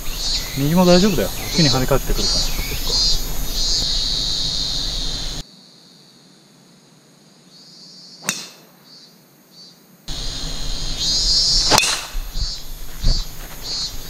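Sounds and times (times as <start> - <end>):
high insect drone: 0.0 - 14.0
golf club striking ball: 8.2 - 8.7, 11.6 - 12.6.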